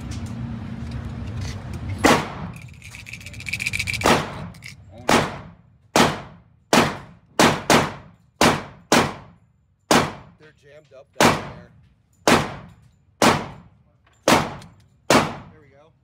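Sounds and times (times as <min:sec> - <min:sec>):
gunshots echoing indoors: 0:02.0 - 0:02.5, 0:04.0 - 0:10.4, 0:11.2 - 0:15.6.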